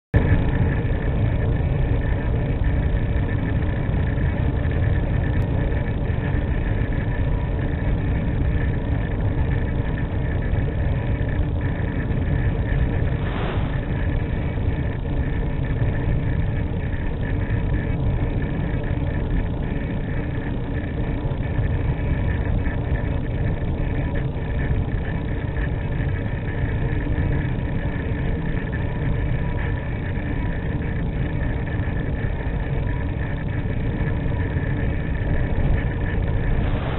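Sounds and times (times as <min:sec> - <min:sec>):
constant hum: 0:00.2 - 0:36.9
wind rushing noise: 0:12.6 - 0:15.0, 0:36.2 - 0:36.9.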